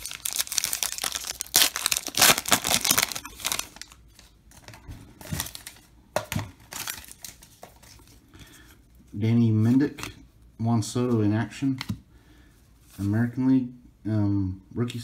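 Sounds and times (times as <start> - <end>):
foil wrapper crinkling and tearing: 0.0 - 4.7, 6.6 - 7.6
cards rustling: 0.0 - 8.2.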